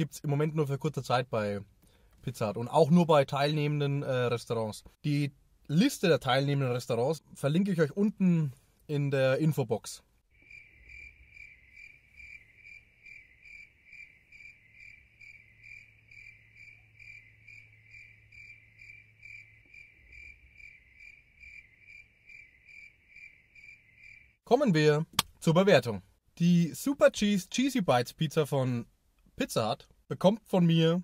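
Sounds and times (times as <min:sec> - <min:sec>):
cricket chirping: 0:10.3 - 0:24.4.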